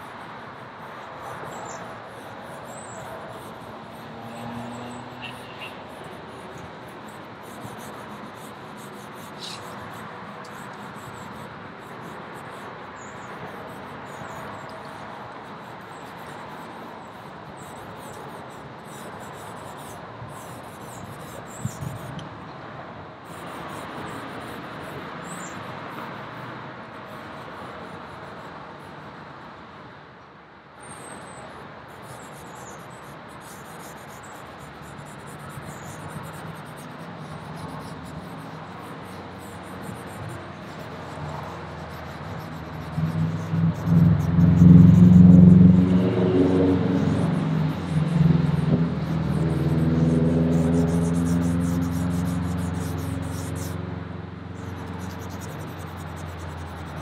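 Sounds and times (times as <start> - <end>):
charcoal scratching on paper: 5.3 - 11.2, 33.4 - 53.8, 54.6 - 57.0.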